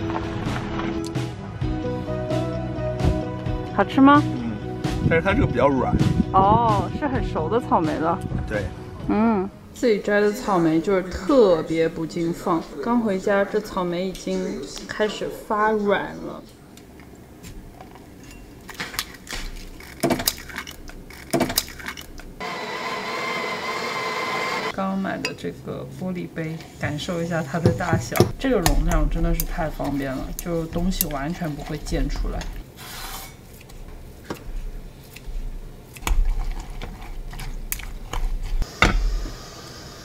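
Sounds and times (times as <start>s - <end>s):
background music: 0.0s - 16.4s.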